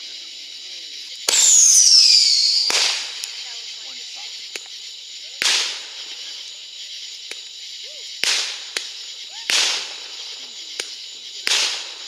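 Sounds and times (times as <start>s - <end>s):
steady high hiss: 0.0s - 12.0s
fireworks loud bangs: 1.2s - 4.0s, 5.4s - 6.3s, 8.2s - 12.0s
small sharp pops: 8.2s - 9.9s, 10.8s - 11.8s.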